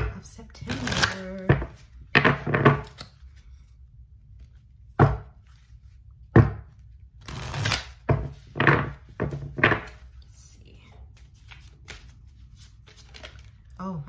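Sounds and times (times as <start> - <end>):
cards slapping and knocking: 0.7 - 3.4, 4.4 - 10.2, 11.1 - 13.6
cards sliding rustle: 11.1 - 13.6.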